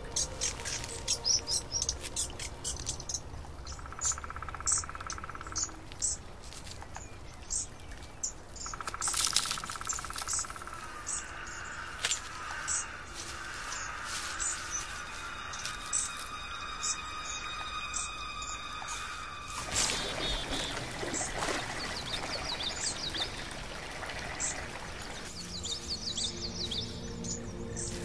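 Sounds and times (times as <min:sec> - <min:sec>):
birds chirping: 0:00.0 - 0:28.0
insect trilling: 0:08.8 - 0:20.8.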